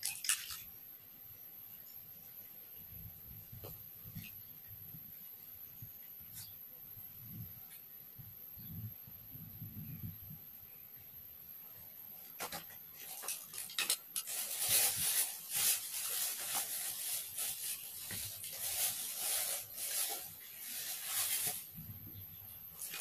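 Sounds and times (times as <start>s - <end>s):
close rustling and rubbing: 12.1s - 21.9s.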